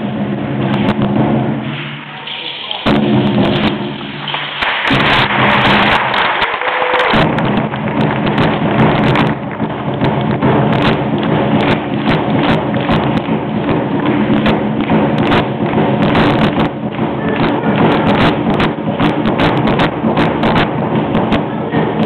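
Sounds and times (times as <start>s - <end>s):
large wooden drums beating: 0.0s - 22.0s.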